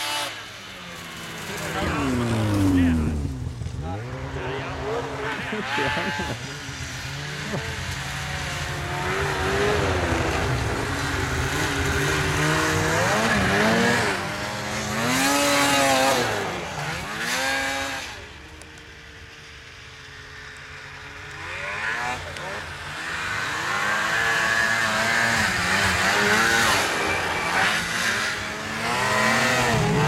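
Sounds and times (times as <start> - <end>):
snowmobile engines revving: 0.0 - 30.0.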